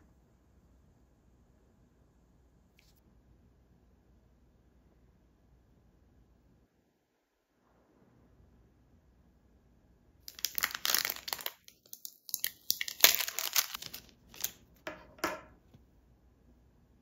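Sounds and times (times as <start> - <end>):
plastic packaging crinkling: 10.3 - 15.1.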